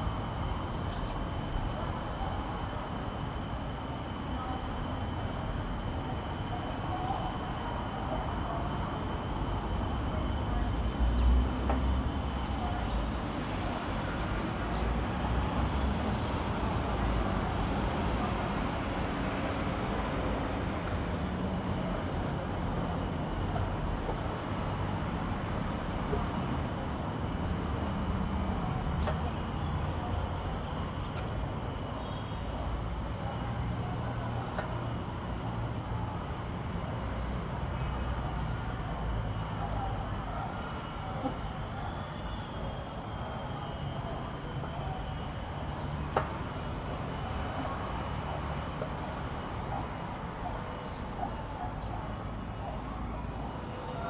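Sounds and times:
road traffic rumble: 0.0 - 54.0.

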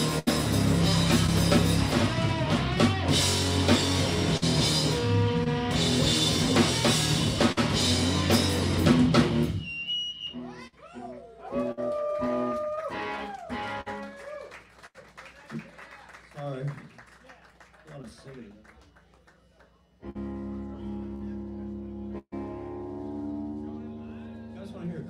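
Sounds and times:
electric guitar bending notes: 0.0 - 9.6, 20.0 - 25.0
rock band playing: 0.0 - 14.2, 20.0 - 25.0.

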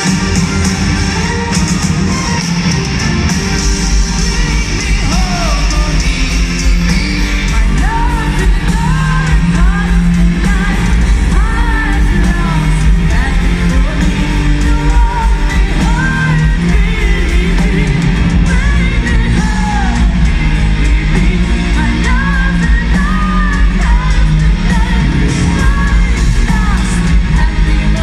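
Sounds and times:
metal band playing live: 0.0 - 28.0
high female singing: 7.5 - 28.0.

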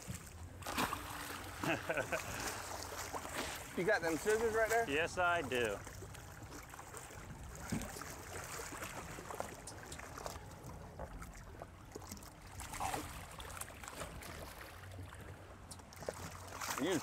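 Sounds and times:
water lapping against boat hull: 0.0 - 17.0
fish thrashing splashes: 0.6 - 3.8.

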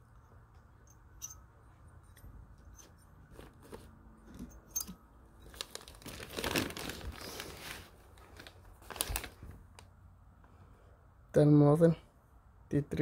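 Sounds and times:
plastic bag crinkling: 5.4 - 9.8.

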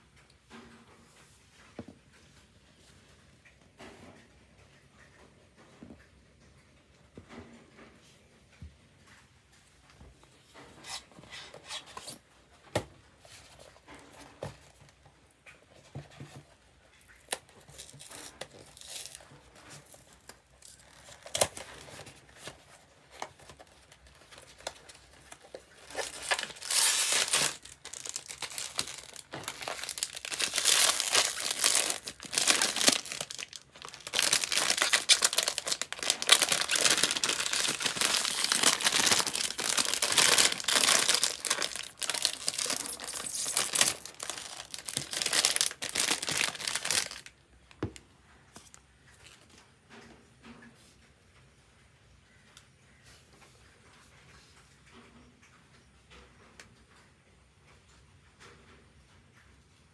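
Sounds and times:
foil bag crinkling: 17.0 - 48.0.

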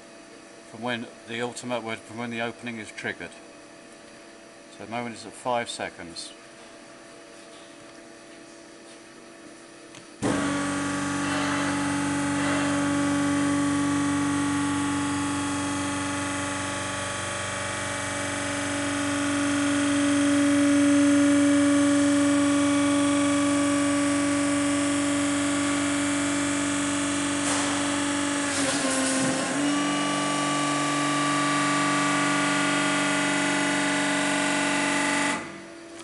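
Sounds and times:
hydraulic pump humming: 10.2 - 36.0.

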